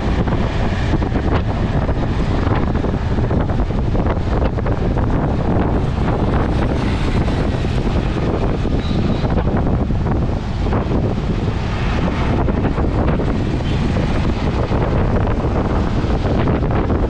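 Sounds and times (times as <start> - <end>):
auto-rickshaw engine: 0.0 - 17.0
road noise: 0.0 - 17.0
wind buffeting microphone: 0.0 - 17.0.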